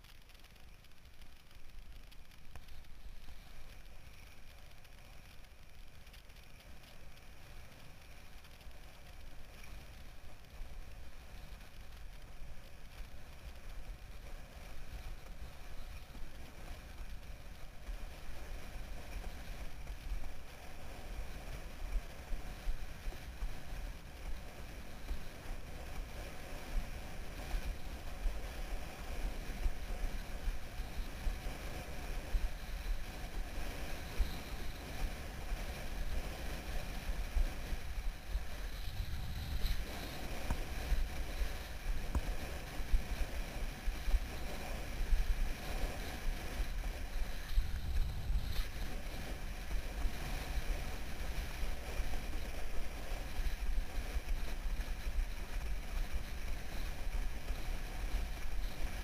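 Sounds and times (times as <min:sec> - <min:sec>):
wind buffeting microphone: 0:21.5 - 0:59.0.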